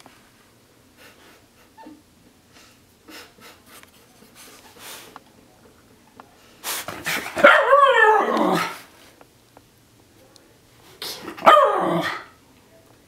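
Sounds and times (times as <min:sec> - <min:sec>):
dog barking: 0:07.4 - 0:08.8, 0:11.4 - 0:12.3.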